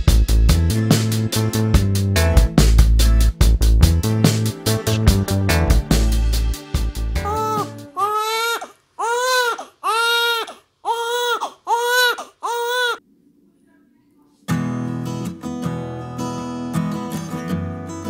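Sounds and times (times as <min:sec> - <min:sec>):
newborn baby crying: 0:07.2 - 0:13.0
acoustic guitar strumming: 0:14.5 - 0:18.0.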